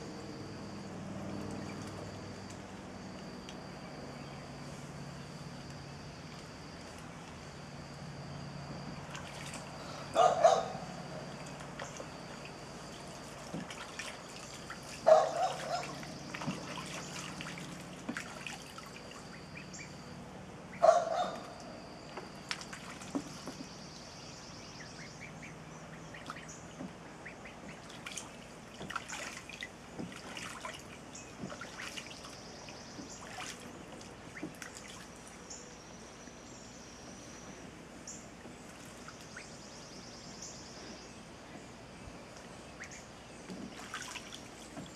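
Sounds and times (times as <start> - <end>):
ducklings splashing water: 9.1 - 35.5, 38.0 - 40.9, 42.2 - 44.9.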